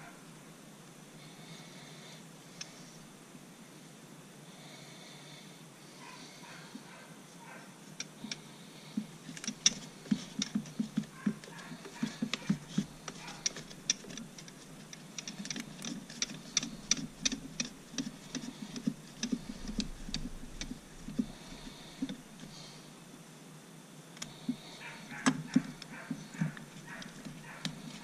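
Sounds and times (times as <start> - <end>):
small metallic clicks and taps: 8.0 - 21.3.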